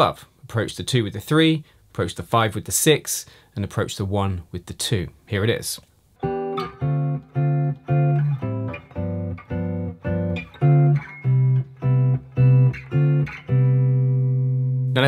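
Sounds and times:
electric guitar chord stabs: 6.2s - 14.9s.

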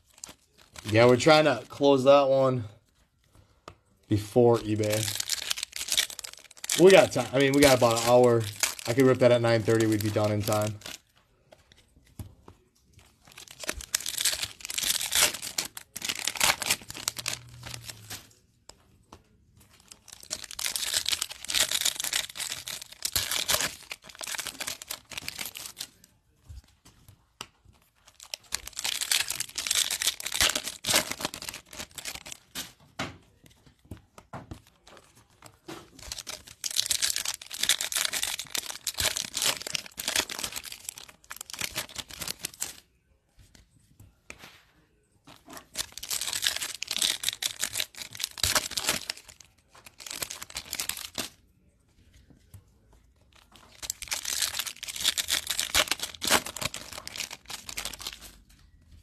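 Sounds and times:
foil packs torn and crinkled: 0.0s - 2.1s, 4.1s - 11.1s, 13.2s - 18.3s, 19.7s - 26.0s, 28.0s - 32.7s, 35.5s - 42.8s, 45.5s - 51.4s, 53.3s - 58.6s
cards being handled: 0.0s - 42.8s, 43.4s - 51.4s, 52.0s - 59.0s.

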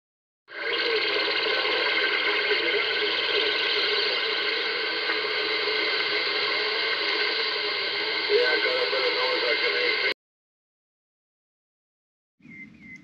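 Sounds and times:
radio static hiss: 0.5s - 10.2s.

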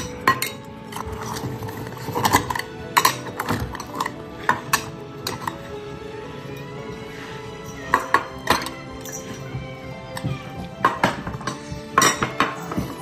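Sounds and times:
metal bowls clinking on wood: 0.0s - 5.7s, 7.6s - 13.0s.

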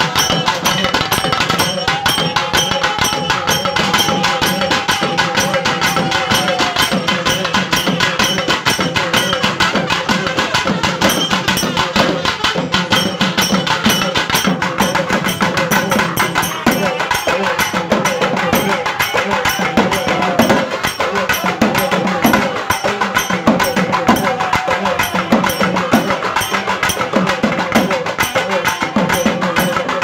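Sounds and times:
percussion ensemble drumming: 0.0s - 30.0s.

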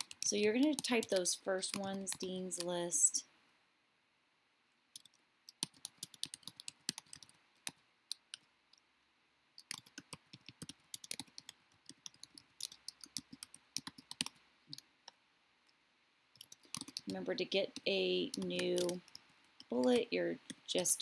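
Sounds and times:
computer keyboard typing: 0.0s - 2.8s, 5.0s - 8.8s, 9.6s - 14.9s, 16.4s - 20.7s.

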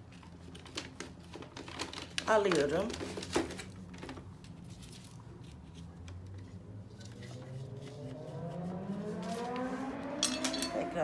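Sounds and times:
low droning tone rising in pitch: 7.2s - 11.0s.

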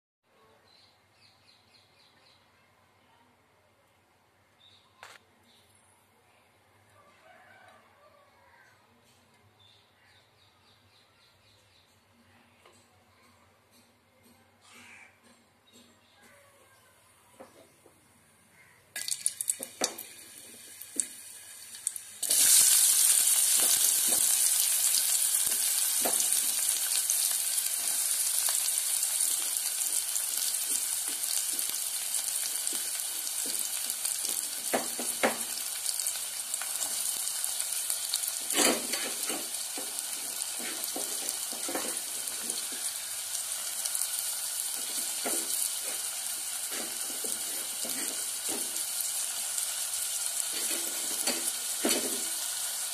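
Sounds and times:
onions sizzling in hot oil: 19.0s - 52.9s
stirring knocks and scrapes on pot: 32.5s - 35.6s, 38.4s - 43.0s, 44.8s - 49.1s, 50.5s - 52.4s.

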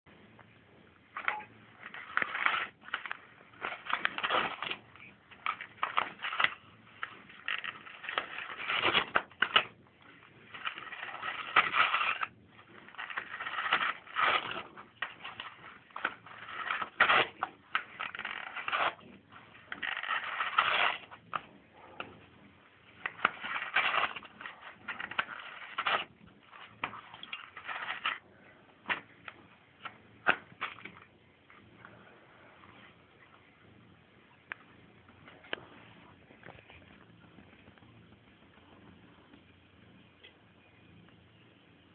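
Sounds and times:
cat chewing: 1.5s - 32.1s.

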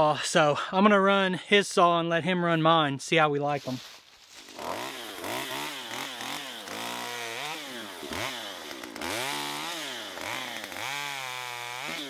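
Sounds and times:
chainsaw cutting limbs: 4.3s - 12.0s.

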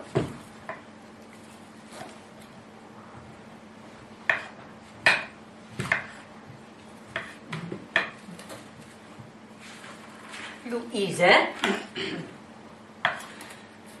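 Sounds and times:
knife and dishes knocking on wood: 4.3s - 6.2s, 7.1s - 8.6s.

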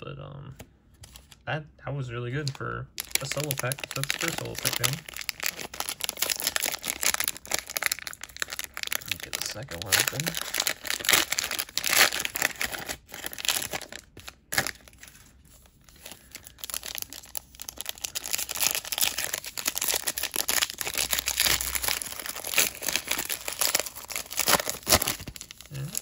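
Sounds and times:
foil wrapper crinkling: 2.4s - 26.0s.

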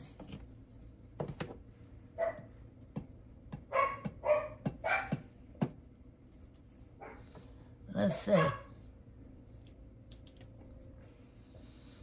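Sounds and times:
dog barking: 2.2s - 2.5s, 3.7s - 5.3s, 7.0s - 7.3s, 8.0s - 8.8s.

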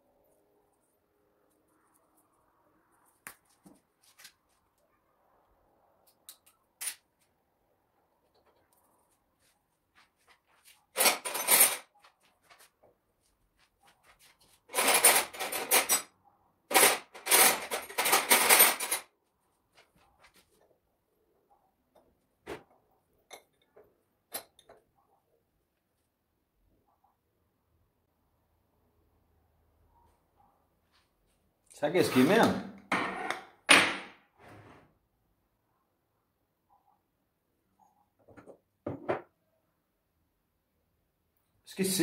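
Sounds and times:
metal tools rattling and clattering: 10.9s - 11.9s, 14.7s - 19.1s.

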